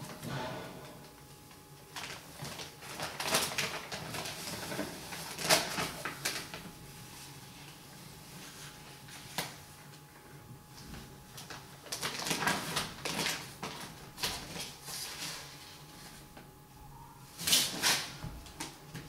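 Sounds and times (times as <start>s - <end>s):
paper and plastic rustling: 1.9s - 9.7s, 10.8s - 16.4s.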